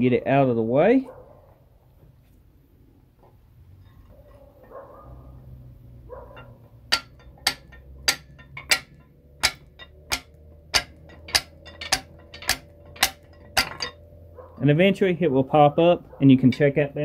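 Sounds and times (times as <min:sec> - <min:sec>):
metal pry bars clicking: 0:06.2 - 0:14.0.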